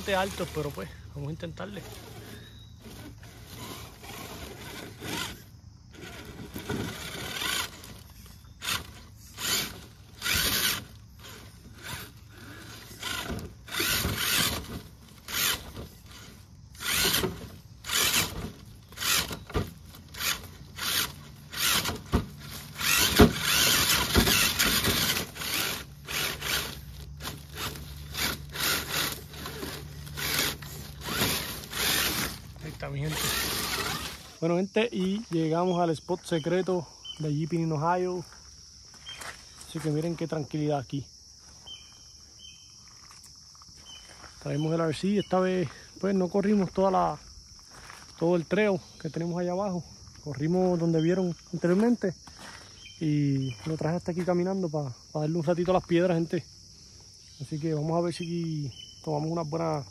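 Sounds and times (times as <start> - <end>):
electric motor and gears whirring: 0.0 - 36.6.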